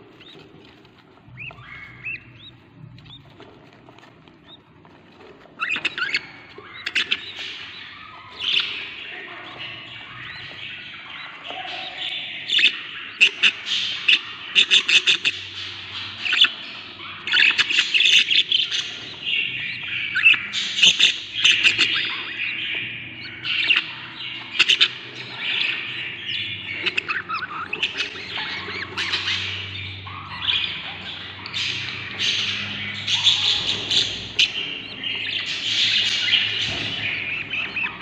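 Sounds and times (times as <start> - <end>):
budgerigar chicks begging calls: 0.0 - 38.0.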